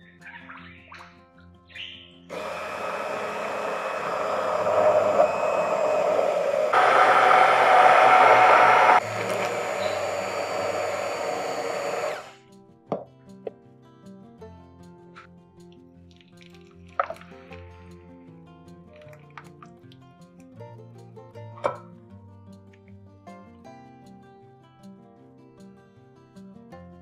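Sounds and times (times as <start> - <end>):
kitchen appliance motor running: 2.3 - 12.4.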